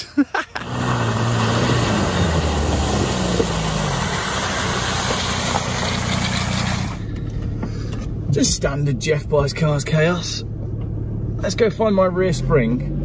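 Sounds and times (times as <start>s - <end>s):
car engine: 0.0s - 13.0s
tyres splashing through mud: 0.6s - 7.0s.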